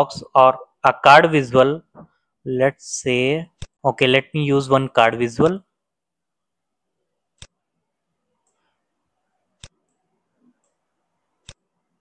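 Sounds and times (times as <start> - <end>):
computer mouse clicking: 9.6 - 11.7.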